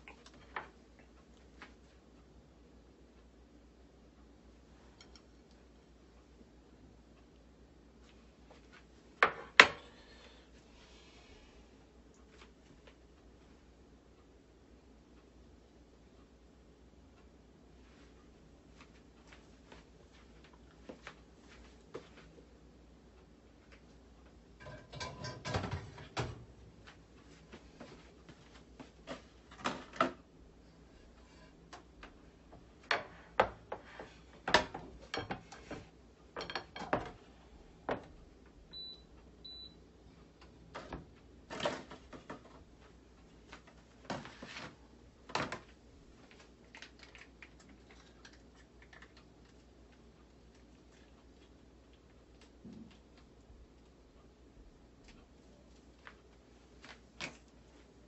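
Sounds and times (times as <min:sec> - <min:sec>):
kitchenware clunking and clattering: 0:24.6 - 0:26.4, 0:34.5 - 0:37.2.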